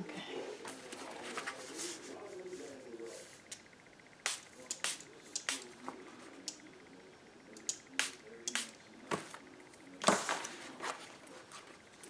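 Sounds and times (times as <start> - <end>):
spray bottle spritzing water: 4.2 - 5.7.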